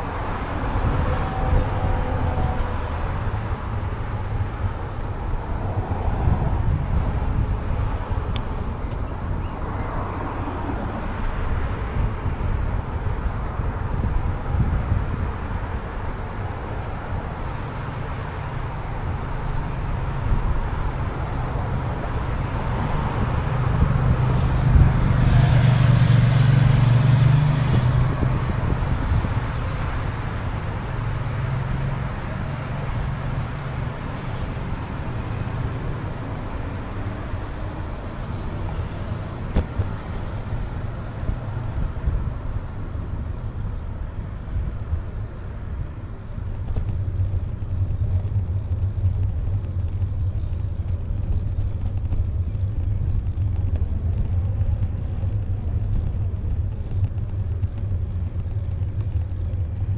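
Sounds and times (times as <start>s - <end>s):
road traffic rumble: 0.0s - 59.9s
vehicle passing close: 16.6s - 45.0s.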